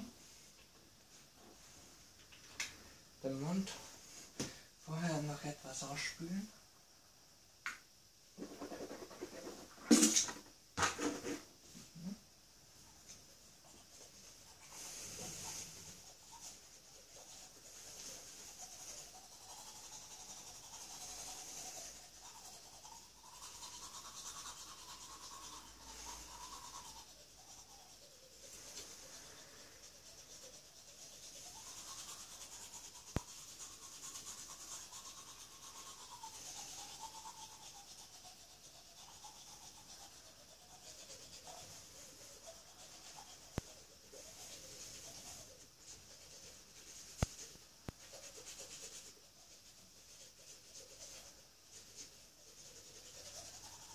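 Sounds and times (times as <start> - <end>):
toothbrush scrubbing teeth: 13.0 - 53.9.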